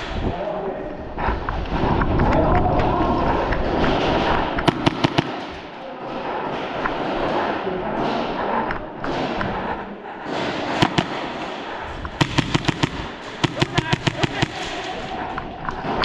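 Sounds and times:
airsoft guns firing: 4.6 - 8.2, 10.2 - 16.0.

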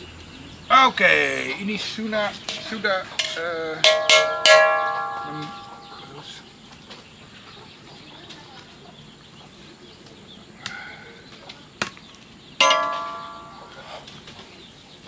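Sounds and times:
sharp ringing metallic clang: 2.5 - 6.4, 12.6 - 14.0.

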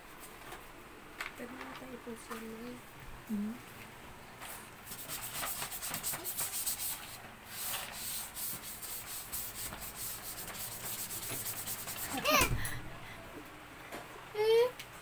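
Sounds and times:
chalk scraping on chalkboard: 4.9 - 12.3.

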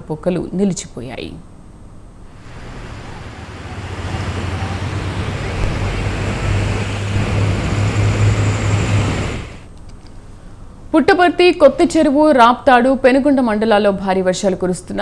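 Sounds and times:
vehicle engine hum: 2.3 - 9.7
car splashing through floodwater: 2.4 - 9.7.

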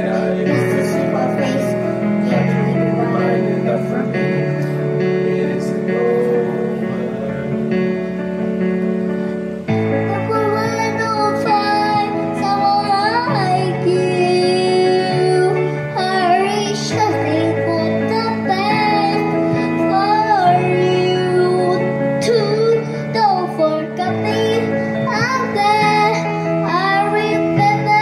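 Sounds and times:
electronic keyboard chords: 0.0 - 28.0
girl singing into a microphone: 0.5 - 3.4, 9.9 - 28.0.

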